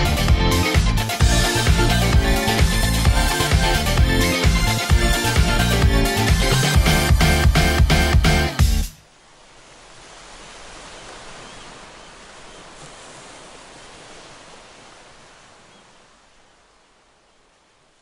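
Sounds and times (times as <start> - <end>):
music: 0.0 - 9.0
ocean wave washing in: 9.5 - 16.1.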